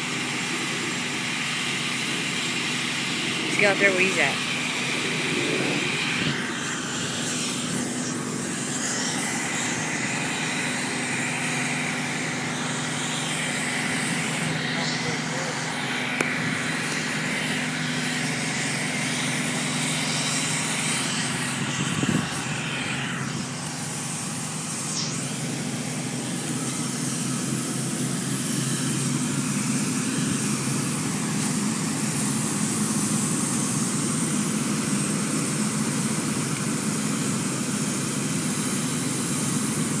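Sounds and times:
vehicle engines rumbling: 1.9 - 31.6.

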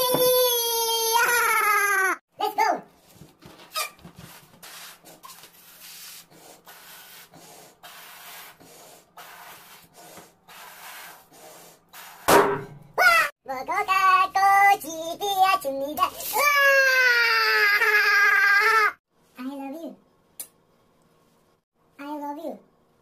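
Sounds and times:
balloon bang: 12.3 - 12.8.

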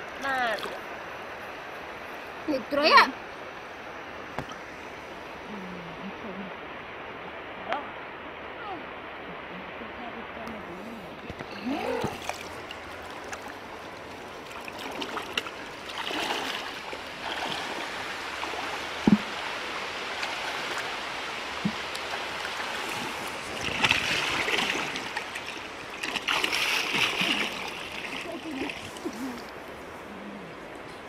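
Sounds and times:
running water: 0.0 - 31.0
water splashing from wading: 0.3 - 1.0, 11.1 - 29.8.

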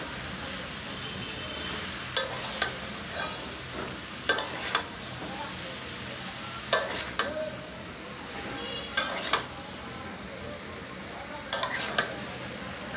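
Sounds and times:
vegetables sizzling: 0.0 - 12.9
metal spatula striking pan: 2.1 - 3.4, 4.3 - 4.9, 6.7 - 7.4, 9.0 - 9.5, 11.5 - 12.1.

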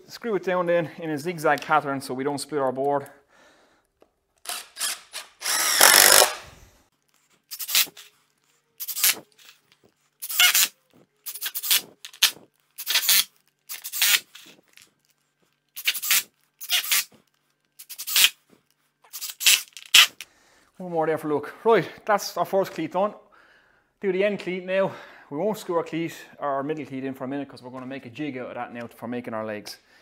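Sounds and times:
cordless drill driving screws: 4.4 - 6.6.

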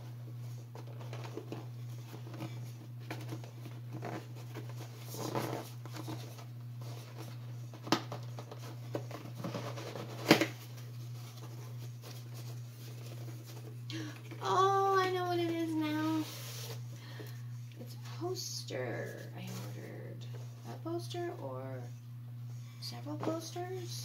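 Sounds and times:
steady low hum: 0.0 - 24.0
cardboard box rustling and scraping: 0.7 - 13.8, 14.6 - 16.8.

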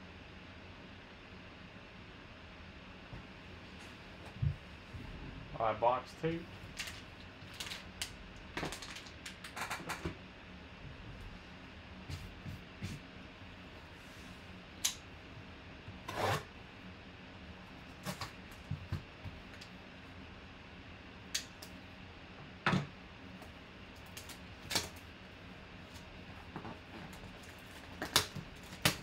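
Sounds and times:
plastic shrink wrap crinkling: 6.6 - 9.6.

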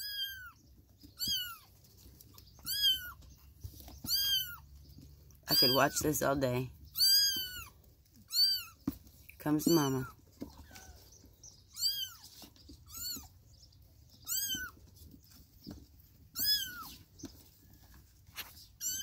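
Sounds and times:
kittens mewing: 0.0 - 1.8, 2.6 - 3.2, 4.0 - 4.7, 5.5 - 6.0, 7.0 - 8.9, 11.7 - 13.4, 14.2 - 14.8, 16.3 - 17.0, 18.8 - 19.0
faint scuffling: 0.2 - 19.0.

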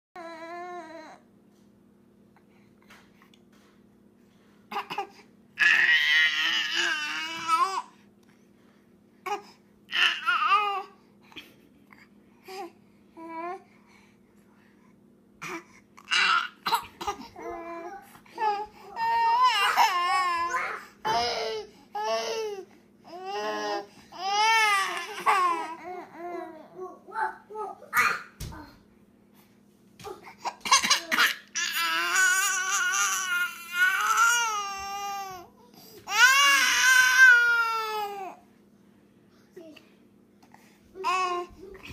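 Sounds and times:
baby crying: 15.4 - 26.7, 30.7 - 35.5, 36.1 - 38.4.

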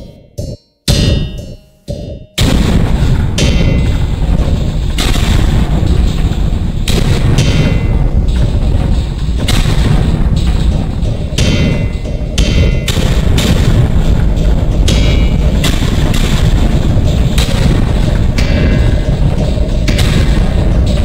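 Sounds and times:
harsh industrial noise music: 0.0 - 21.0
sharp decaying hits: 0.0 - 21.0.

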